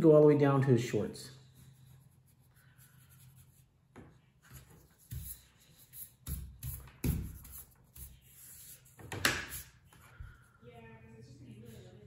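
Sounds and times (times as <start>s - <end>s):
eraser rubbing on paper: 4.4s - 10.1s.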